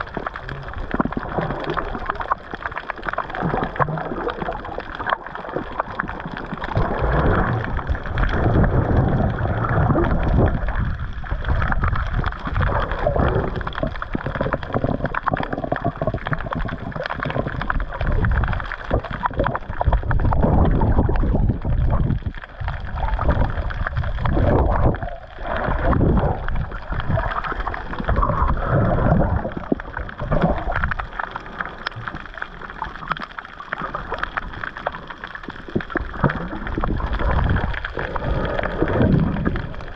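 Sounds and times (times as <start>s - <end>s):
muffled water sloshing and gurgling: 0.0s - 39.9s.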